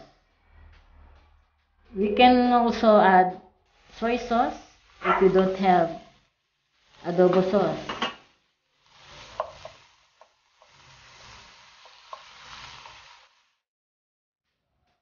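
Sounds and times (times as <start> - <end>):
food sizzling: 3.6 - 13.6
spatula scraping wok: 3.7 - 13.6
spatula tapping pan: 9.2 - 10.8, 11.8 - 12.4.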